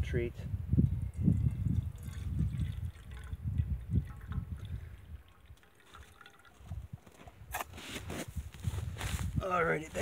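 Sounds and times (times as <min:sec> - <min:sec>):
liquid pouring into a metal can: 0:00.8 - 0:07.5.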